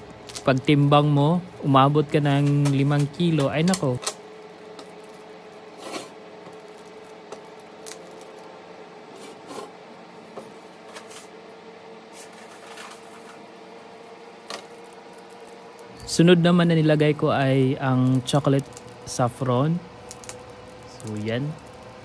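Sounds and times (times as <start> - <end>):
steady low hum: 0.0 - 22.0
plastic wrappers rustling and clicking: 0.2 - 8.5, 14.4 - 16.2, 17.8 - 19.4, 20.0 - 22.0.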